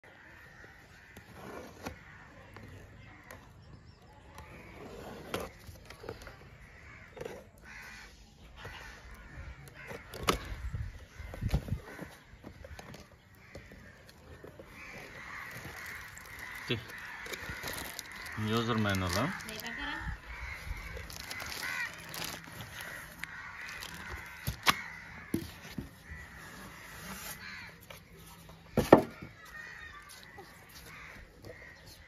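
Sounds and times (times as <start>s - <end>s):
birds cawing: 0.0s - 32.0s
cardboard rustling: 9.7s - 31.7s
packing tape peeled off: 15.5s - 19.7s, 20.8s - 24.9s.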